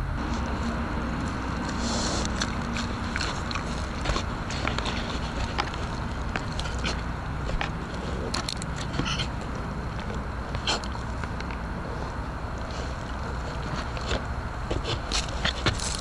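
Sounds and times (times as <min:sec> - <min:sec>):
steady low hum: 0:00.0 - 0:16.0
bear licking camera: 0:00.2 - 0:16.0.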